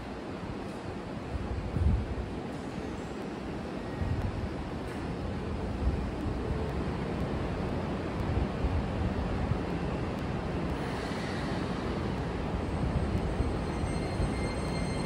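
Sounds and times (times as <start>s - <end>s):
train rumble and hiss: 0.0s - 15.0s.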